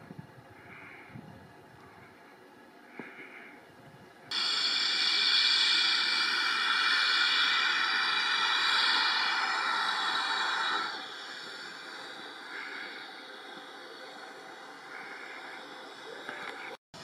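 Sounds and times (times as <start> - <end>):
locomotive letting off steam: 4.3 - 16.8.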